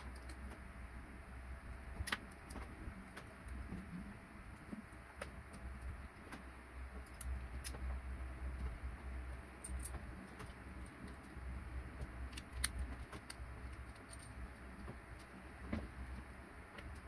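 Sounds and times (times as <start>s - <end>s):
small metal parts clicking: 0.0s - 0.5s, 12.2s - 15.3s
steady low hum: 0.0s - 17.0s.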